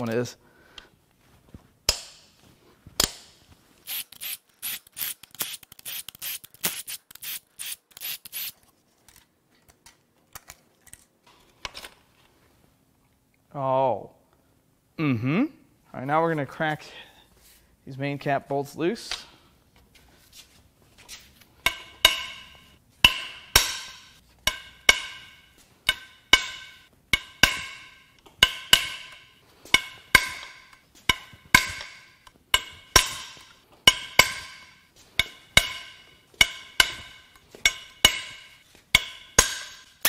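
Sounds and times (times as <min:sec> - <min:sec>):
hammer striking metal: 0:21.6 - 0:40.0.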